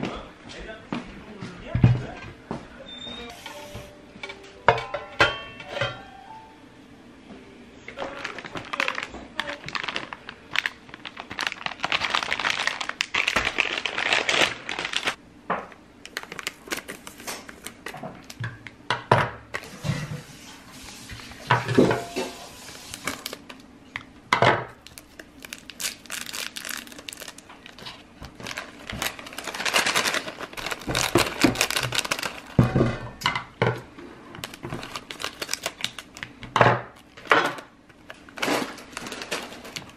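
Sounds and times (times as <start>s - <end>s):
plastic packaging crinkling: 8.0s - 15.2s, 16.0s - 18.4s, 22.4s - 23.6s, 24.7s - 32.9s, 34.3s - 39.9s.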